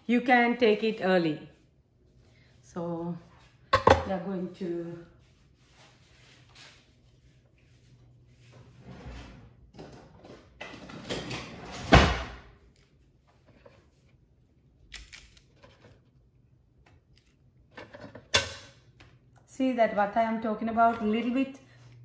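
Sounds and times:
kitchen drawer sliding: 8.6 - 12.4
drawer banging shut: 10.8 - 12.5.

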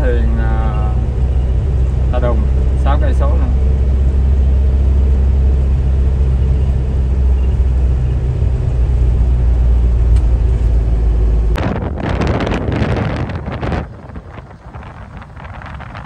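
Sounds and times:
bus engine rumble and road noise: 0.0 - 16.0
wind noise on microphone: 7.4 - 16.0.

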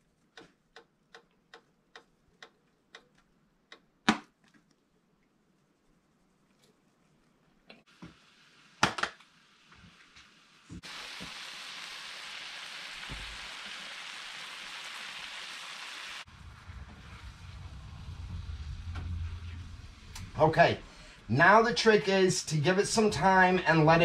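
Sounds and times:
food sizzling in a pan: 7.9 - 18.8.

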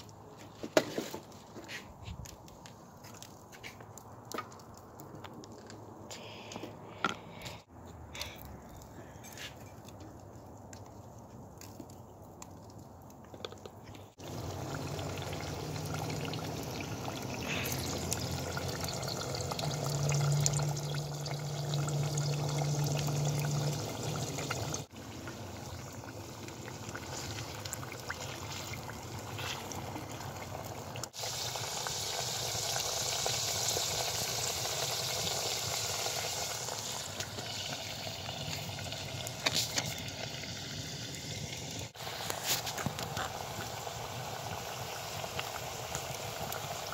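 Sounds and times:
small crackles: 0.0 - 15.3, 42.2 - 43.8
oil sizzling and bubbling: 2.2 - 6.0, 9.8 - 46.9.

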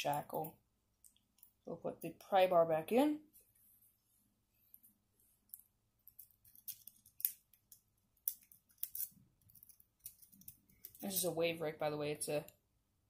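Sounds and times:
lock pick clicking and scraping: 6.0 - 11.0.

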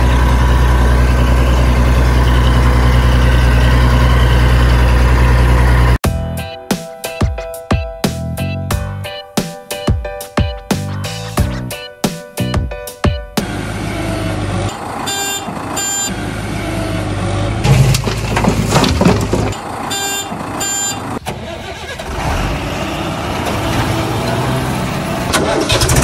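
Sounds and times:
diesel engine running: 0.0 - 6.0, 13.4 - 26.0
reversing alarm beeping: 14.1 - 16.2, 19.9 - 21.1
rattling: 17.7 - 19.7.

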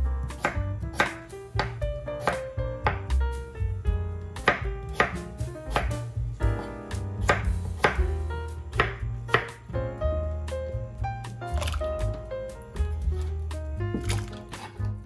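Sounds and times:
soft background music: 0.0 - 15.0
knife chopping on wooden board: 0.2 - 3.1, 4.4 - 8.1, 8.8 - 9.6, 13.9 - 14.9.

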